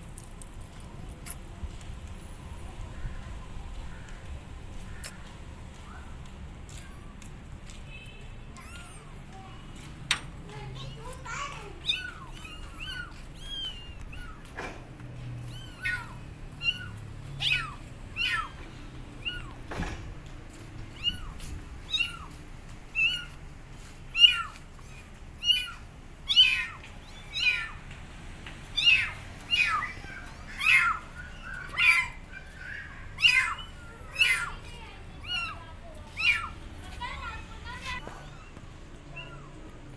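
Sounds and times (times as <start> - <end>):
kittens meowing: 8.6 - 9.4, 10.8 - 20.0, 20.8 - 23.4, 24.1 - 27.9, 28.7 - 39.8.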